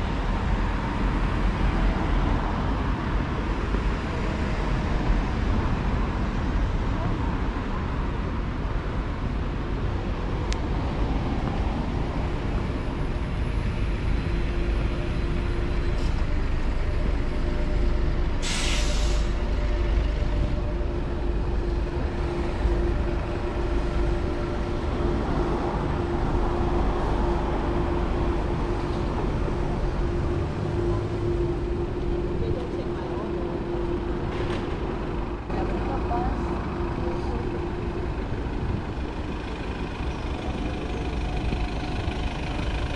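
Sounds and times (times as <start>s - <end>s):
road traffic rumble: 0.0s - 42.9s
sharp hiss: 18.4s - 19.4s
steady hum: 19.3s - 39.9s.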